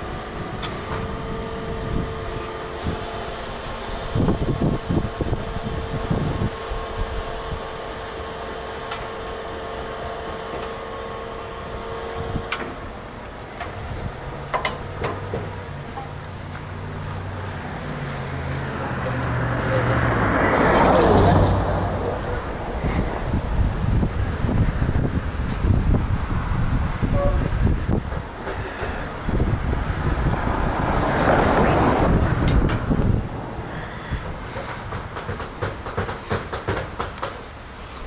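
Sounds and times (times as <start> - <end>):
wind buffeting microphone: 0.0 - 7.8, 13.7 - 36.1
steady mechanical whine: 0.0 - 38.0
truck engine hum: 0.0 - 38.0.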